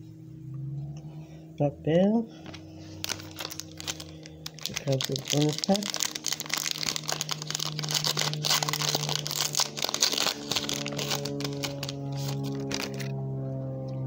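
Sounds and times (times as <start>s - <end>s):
background music with sustained notes: 0.0s - 14.0s
plastic wrapper crinkling and tearing: 2.5s - 13.1s.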